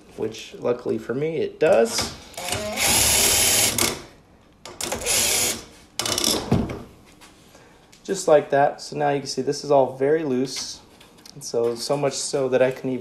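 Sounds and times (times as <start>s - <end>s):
impact driver running: 2.4s - 4.0s, 4.8s - 5.7s.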